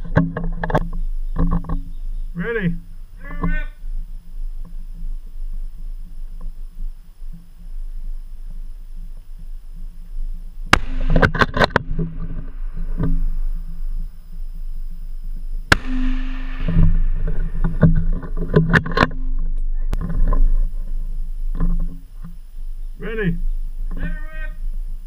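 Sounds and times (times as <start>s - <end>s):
rifle shots: 10.7s - 13.7s, 15.7s - 18.0s.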